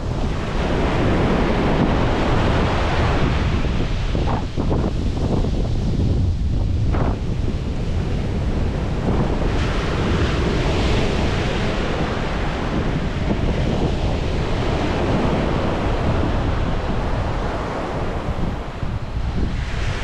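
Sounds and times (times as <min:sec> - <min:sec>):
ocean surf washing onto beach: 0:00.0 - 0:20.0
wind buffeting microphone: 0:00.0 - 0:20.0.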